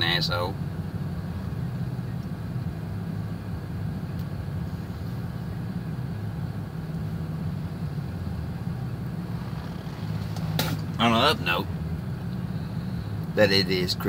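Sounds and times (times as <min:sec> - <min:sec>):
truck engine idling: 0:00.0 - 0:14.0
heater rushing: 0:04.2 - 0:13.4.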